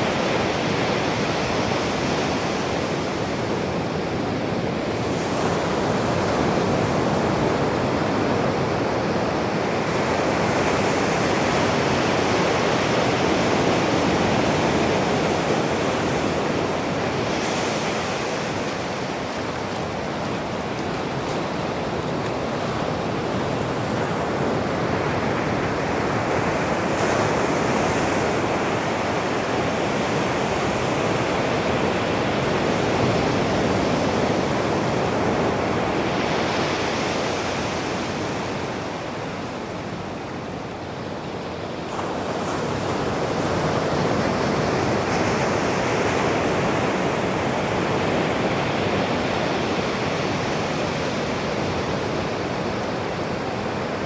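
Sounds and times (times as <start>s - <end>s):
ocean surf breaking on beach: 0.0s - 54.0s.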